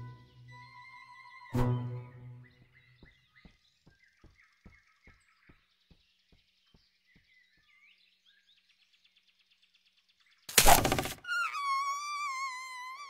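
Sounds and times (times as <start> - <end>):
bird trill: 0.0 - 6.0, 10.3 - 13.0
birds chirping: 0.0 - 13.0.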